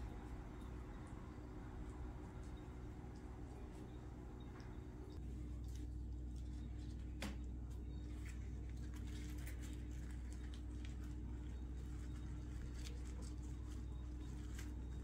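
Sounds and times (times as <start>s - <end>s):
steady low hum: 0.0s - 15.0s
hands rustling pastry sheet: 5.4s - 15.0s.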